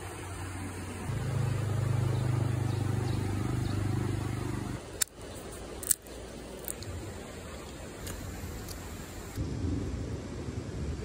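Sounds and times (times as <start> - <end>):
vehicle engine running: 0.2 - 4.8
peanut shell cracking: 5.0 - 6.9.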